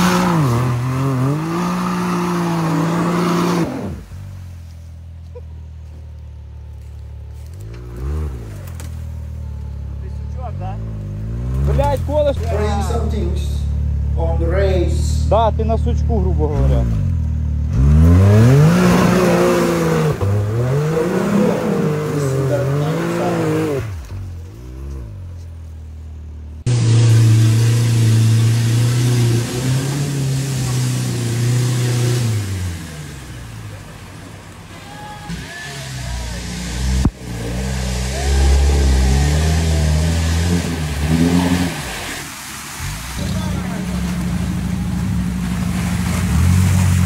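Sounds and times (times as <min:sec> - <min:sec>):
engine revving hard: 0:00.0 - 0:04.1, 0:17.7 - 0:24.0, 0:26.7 - 0:33.5, 0:35.7 - 0:42.2.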